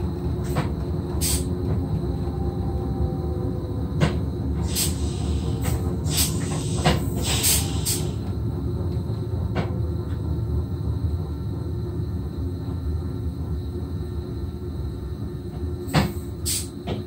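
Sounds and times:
train rumble: 0.0 - 17.0
brief hisses: 4.7 - 8.2, 16.0 - 16.8.

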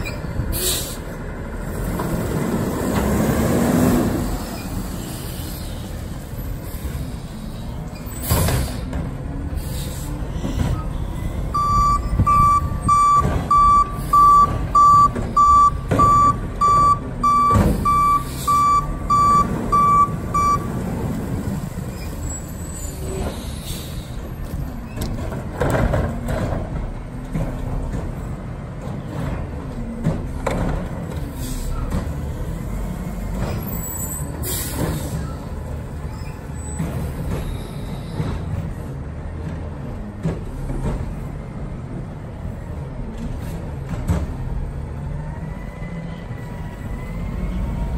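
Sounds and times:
air brake hisses: 0.5 - 1.2, 4.4 - 6.0, 9.6 - 10.3, 22.8 - 24.2, 31.3 - 31.9, 34.4 - 35.5
truck reverse alarm beeping: 11.5 - 20.8.

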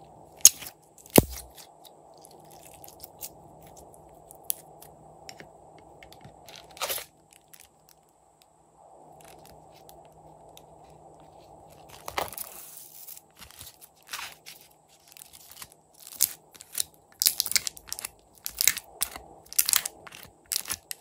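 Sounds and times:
slime crackling and popping: 15.0 - 21.0.

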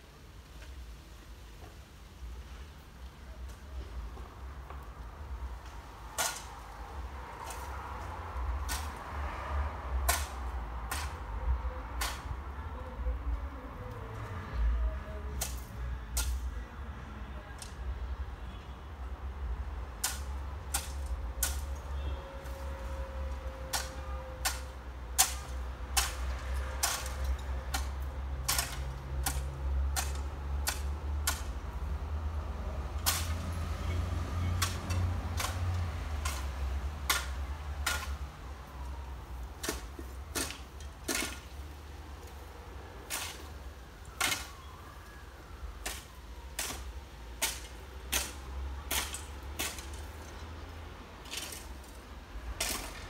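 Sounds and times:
hand tool scraping gravel: 6.1 - 9.1, 10.0 - 11.4, 20.0 - 31.6, 33.0 - 38.2, 39.6 - 42.4, 43.0 - 44.5, 45.8 - 50.4, 51.2 - 53.0.

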